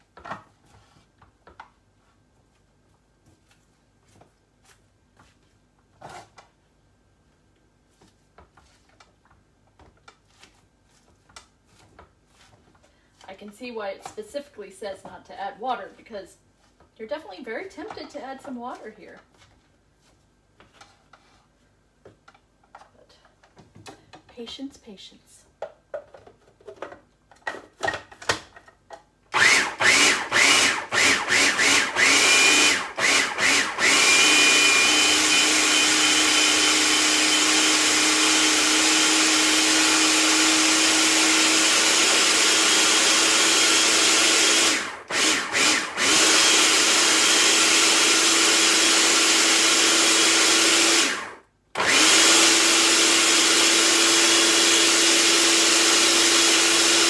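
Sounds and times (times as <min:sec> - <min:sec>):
food processor running: 0:29.4 - 0:57.0.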